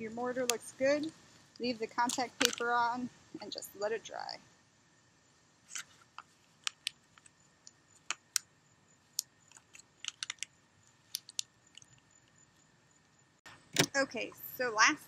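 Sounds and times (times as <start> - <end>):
glass mosaic pieces clicking: 9.2 - 10.5, 11.1 - 12.0.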